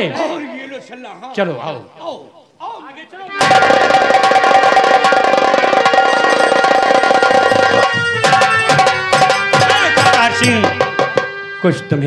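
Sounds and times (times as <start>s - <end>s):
held melody notes: 3.3s - 12.0s
fast drumming: 3.4s - 11.7s.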